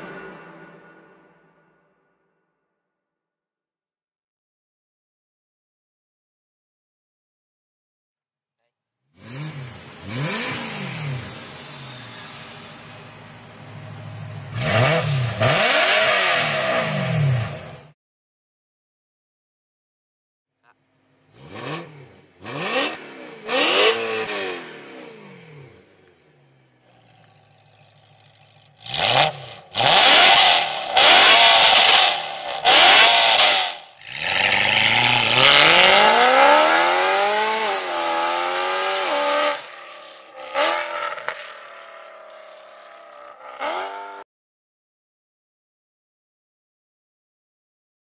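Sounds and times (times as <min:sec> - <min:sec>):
car engine revving and idling: 0:09.2 - 0:17.9, 0:20.7 - 0:44.2
car launching and pulling away: 0:09.2 - 0:17.9, 0:21.2 - 0:44.2.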